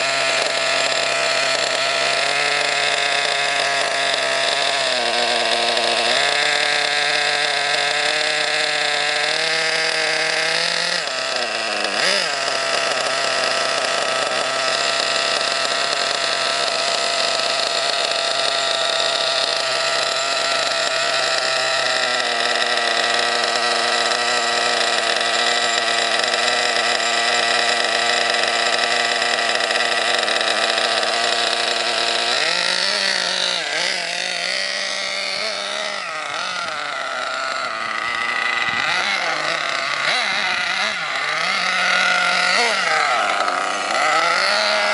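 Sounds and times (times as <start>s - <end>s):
model engine idling high-pitched buzz: 0.0s - 44.9s.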